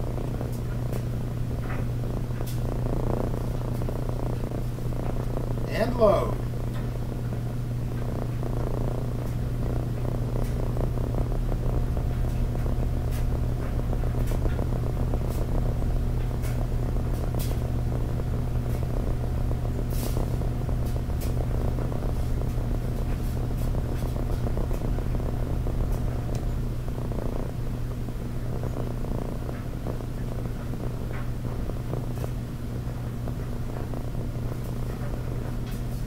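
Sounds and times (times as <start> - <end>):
box fan motor humming: 0.0 - 36.0
faint clicks: 25.8 - 26.6.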